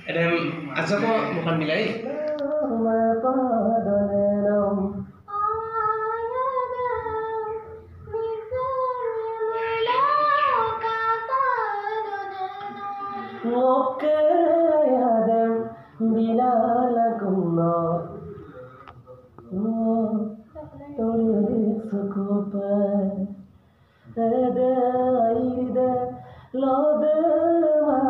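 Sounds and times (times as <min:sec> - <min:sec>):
girl singing long held notes: 0:04.6 - 0:15.0.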